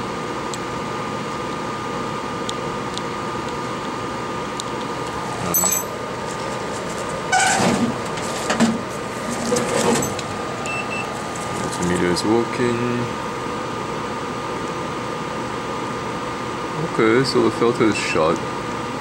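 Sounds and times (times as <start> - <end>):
equipment hum with faint whine: 0.0 - 19.0
small tools clicking and clattering: 5.5 - 6.0.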